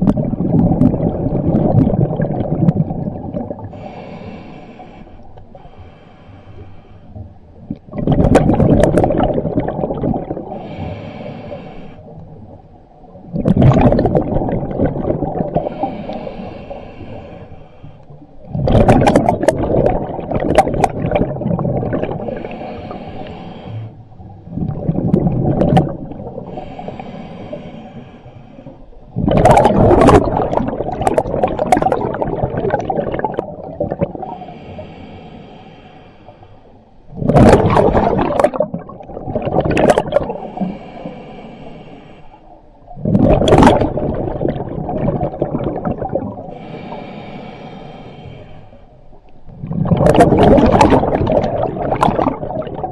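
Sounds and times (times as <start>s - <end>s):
exhaled bubbles rushing: 0.0s - 3.8s, 7.6s - 10.6s, 13.2s - 15.9s, 18.4s - 22.6s, 24.2s - 26.6s, 29.1s - 34.3s, 37.1s - 40.6s, 42.9s - 46.6s, 49.5s - 52.9s
regulator hissing inhale: 3.6s - 7.2s, 10.5s - 12.1s, 15.6s - 18.2s, 22.2s - 24.1s, 26.4s - 29.0s, 34.2s - 36.8s, 40.3s - 42.6s, 46.5s - 49.0s.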